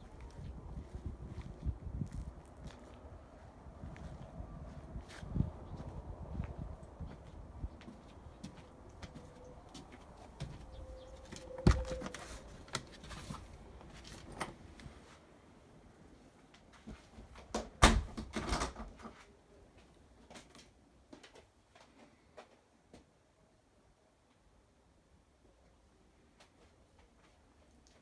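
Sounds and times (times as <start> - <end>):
knocks and thumps: 11.6 - 12.1.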